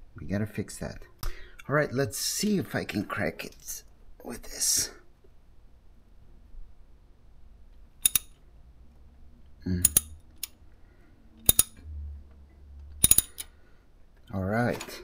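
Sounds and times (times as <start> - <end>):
wrench clicking on metal: 8.0 - 8.4, 9.8 - 10.6, 11.4 - 11.8, 13.0 - 13.5.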